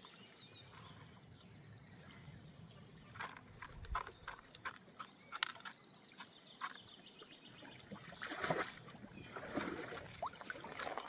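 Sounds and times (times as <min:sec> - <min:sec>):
water swishing in a plastic pan: 0:07.7 - 0:11.0.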